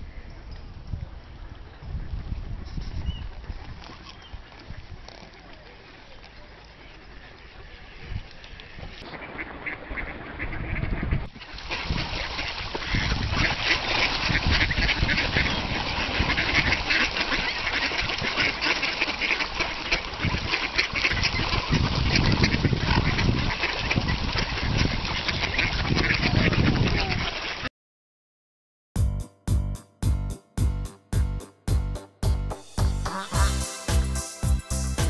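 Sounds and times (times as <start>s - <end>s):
flock of ducks quacking: 5.6s - 27.7s, 33.0s - 34.4s.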